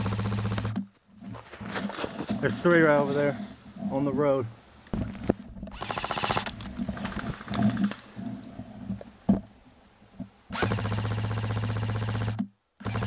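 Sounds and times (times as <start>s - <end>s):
low motor hum: 0.0s - 0.8s
airsoft rifle firing full-auto: 5.8s - 8.0s.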